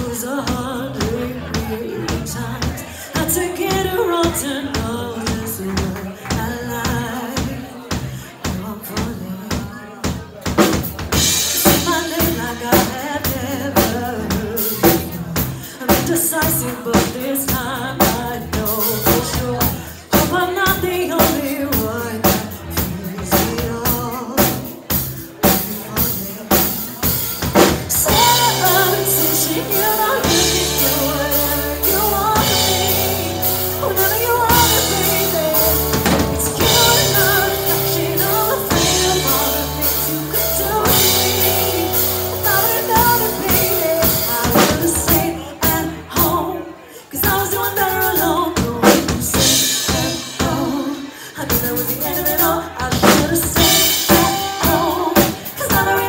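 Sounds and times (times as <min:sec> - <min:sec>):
woman singing: 0:00.0 - 0:10.2, 0:11.1 - 0:56.0
live band playing: 0:00.0 - 0:56.0
long held bass notes: 0:27.5 - 0:45.0.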